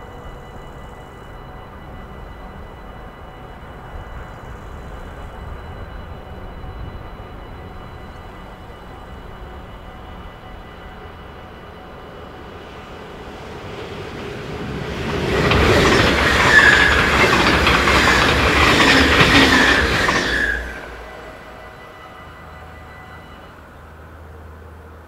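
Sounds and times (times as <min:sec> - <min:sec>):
train wheel squeal: 0:00.0 - 0:24.5
crossing warning bell ringing: 0:00.0 - 0:25.0
train wheels clattering on rails: 0:12.5 - 0:21.0.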